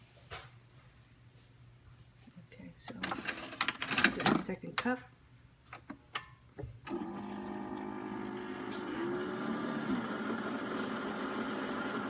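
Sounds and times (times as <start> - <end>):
coffee maker pump humming: 6.9 - 12.0.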